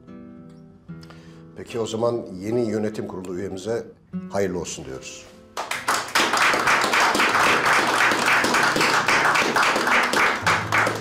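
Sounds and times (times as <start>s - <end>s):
people applauding: 5.6s - 11.0s.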